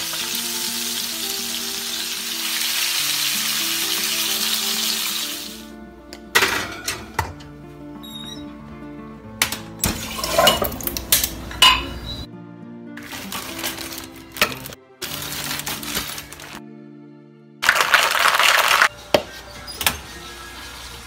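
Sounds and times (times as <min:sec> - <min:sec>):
background music: 0:00.0 - 0:21.0
glass bottles clinking: 0:09.8 - 0:12.3
drinks pouring: 0:17.6 - 0:18.9.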